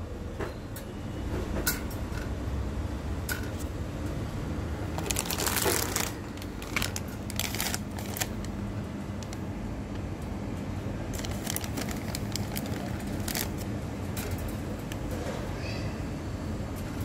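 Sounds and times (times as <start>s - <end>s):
low steady hum: 0.0s - 17.0s
plastic bag crinkling: 4.9s - 8.6s, 11.1s - 13.7s
pellets crackling tipped out: 5.0s - 8.5s, 11.1s - 13.7s.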